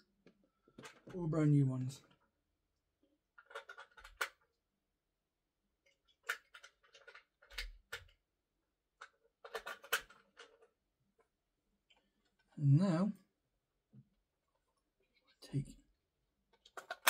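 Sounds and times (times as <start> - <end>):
plastic toy parts clattering: 0.2 - 1.3, 3.3 - 4.6, 5.8 - 8.2, 8.9 - 11.3, 16.5 - 17.0.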